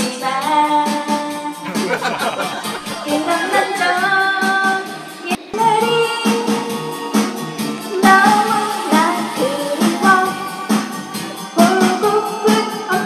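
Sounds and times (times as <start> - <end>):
woman singing: 0.0 - 1.6, 2.8 - 13.0
karaoke backing track: 0.0 - 13.0.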